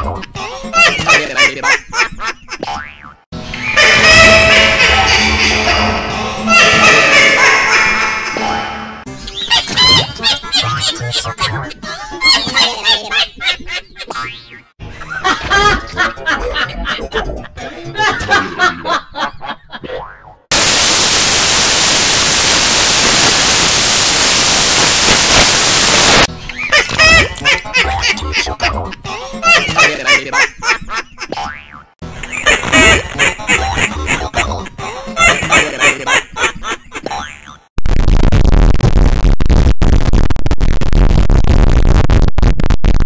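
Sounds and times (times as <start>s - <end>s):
cartoon mouse giggling: 9.4s - 14.3s, 26.5s - 31.5s, 32.2s - 37.6s
harshly distorted blare: 20.5s - 26.3s, 37.8s - 43.0s
white noise static hiss: 20.5s - 26.3s.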